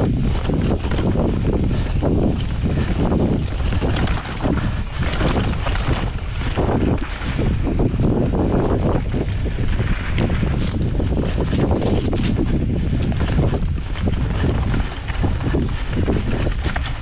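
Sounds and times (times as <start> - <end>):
bike knocking and rattling: 0.0 - 17.0
tyres rushing on dirt: 0.0 - 17.0
wind buffeting microphone: 0.0 - 17.0.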